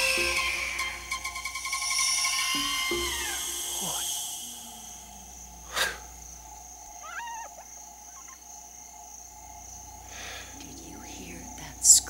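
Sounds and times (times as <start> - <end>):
insect drone: 0.0 - 12.0
brief wavering animal call: 7.0 - 7.6.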